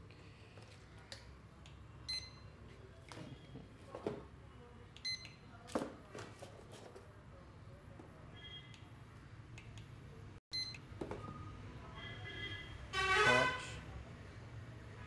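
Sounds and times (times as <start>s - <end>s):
barcode scanner beeps: 5.0s - 5.5s, 10.5s - 10.9s.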